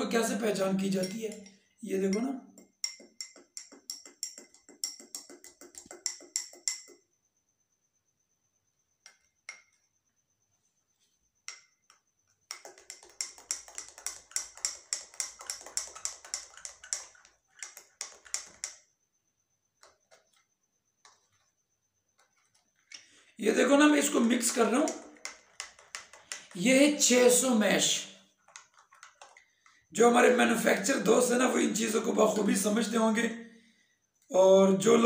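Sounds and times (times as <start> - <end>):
spoon clinking in glass: 0.8 - 7.0.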